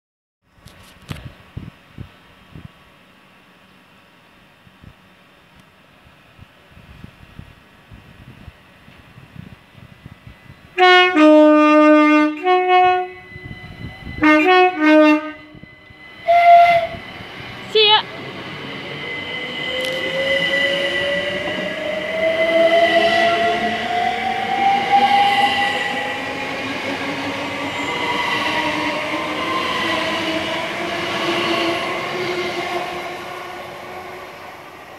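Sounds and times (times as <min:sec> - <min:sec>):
train rail noise: 0:00.6 - 0:34.9
electric train motor whine: 0:07.1 - 0:34.9
two-tone train horn: 0:10.8 - 0:17.1, 0:22.3 - 0:24.1.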